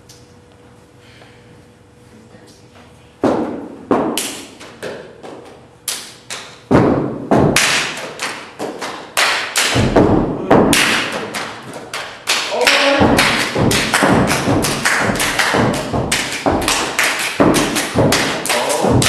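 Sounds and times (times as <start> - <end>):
hand claps: 3.9 - 6.7, 7.4 - 10.0, 10.6 - 19.0
sharp stomps: 6.7 - 19.0.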